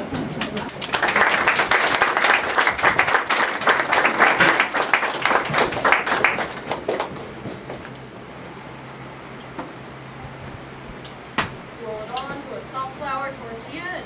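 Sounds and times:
audience applauding: 0.2 - 7.3.

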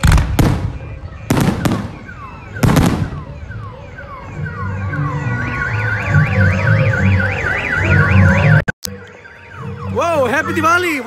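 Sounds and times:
firework bang: 0.0 - 3.2
car alarm: 0.6 - 11.0.

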